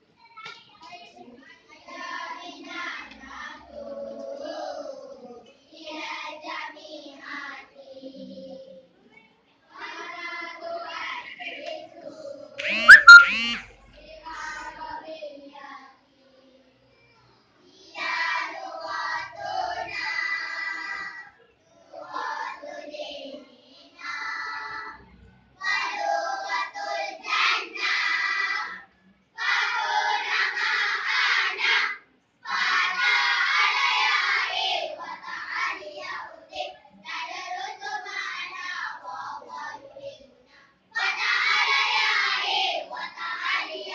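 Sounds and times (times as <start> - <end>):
children's choir singing: 1.8 - 8.7, 9.8 - 13.6, 17.8 - 21.2, 21.8 - 25.0, 25.6 - 40.2, 40.9 - 43.9
loud pitched sound: 12.6 - 13.6.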